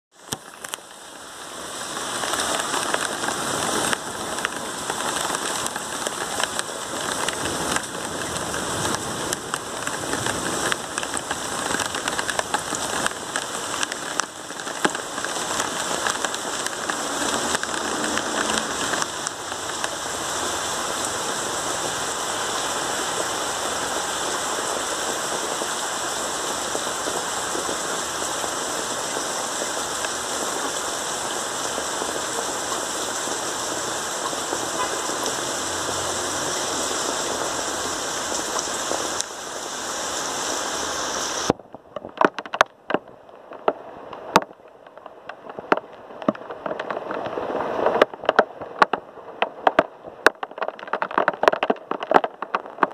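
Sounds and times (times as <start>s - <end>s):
rain falling steadily: 0.1s - 52.9s
sharp raindrop hits: 0.1s - 52.9s.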